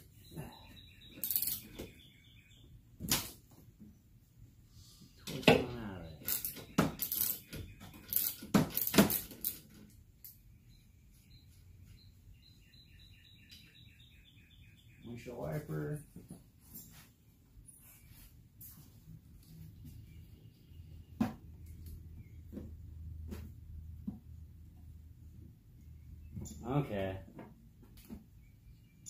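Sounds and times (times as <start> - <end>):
wrench clinking on metal nut: 1.2 - 1.7.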